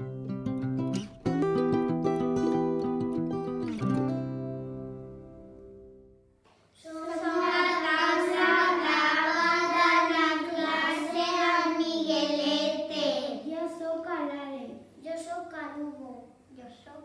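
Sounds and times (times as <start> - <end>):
acoustic guitar chord: 0.0 - 6.3
child singing: 6.8 - 14.3.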